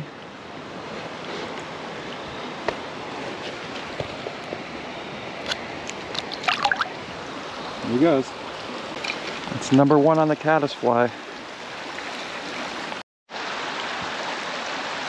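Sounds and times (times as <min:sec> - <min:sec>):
creek water running: 0:00.0 - 0:15.0
short water splashes: 0:06.1 - 0:07.0.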